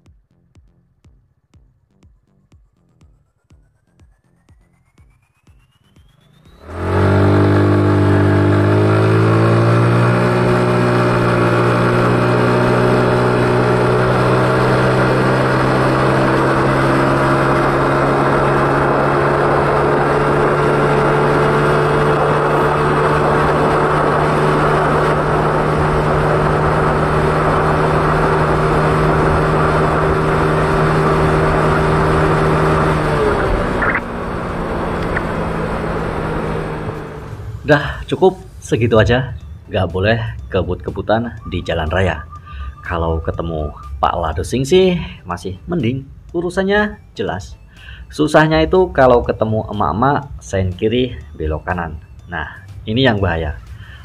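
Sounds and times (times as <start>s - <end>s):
scooter engine accelerating: 0.0s - 47.0s
wind and road noise: 5.9s - 46.4s.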